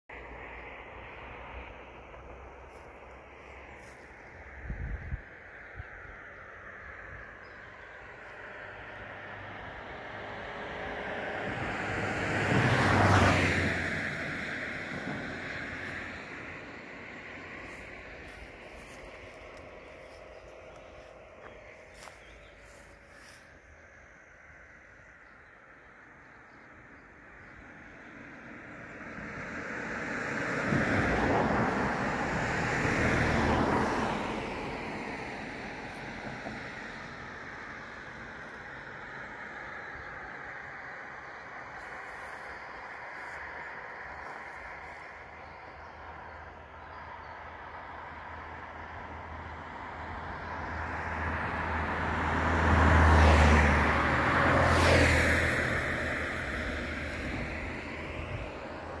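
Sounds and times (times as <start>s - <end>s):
vehicle passing by: 0.1s - 25.7s, 27.2s - 59.0s.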